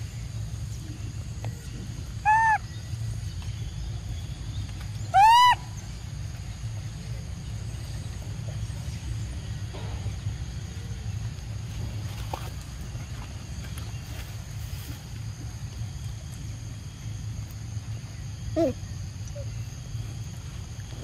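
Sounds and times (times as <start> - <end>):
low background rumble: 0.0 - 21.0
macaque coo calls: 2.2 - 2.8, 5.1 - 5.8, 18.5 - 19.7.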